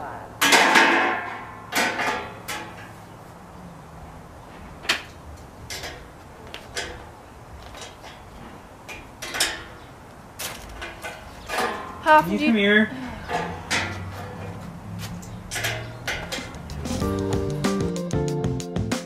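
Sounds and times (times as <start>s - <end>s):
metal clanks and knocks: 0.4s - 3.0s, 4.5s - 6.1s, 6.7s - 9.8s, 10.4s - 12.2s, 13.2s - 17.1s.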